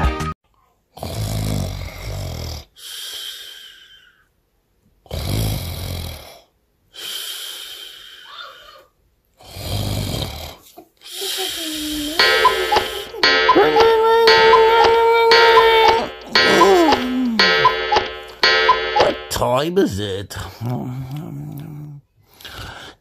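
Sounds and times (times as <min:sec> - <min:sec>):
music: 0:00.0 - 0:00.3, 0:12.2 - 0:19.4.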